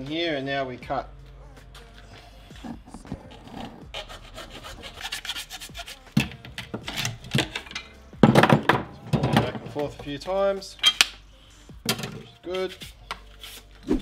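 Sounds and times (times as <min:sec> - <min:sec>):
hacksaw cutting plastic pipe: 0:03.0 - 0:08.6.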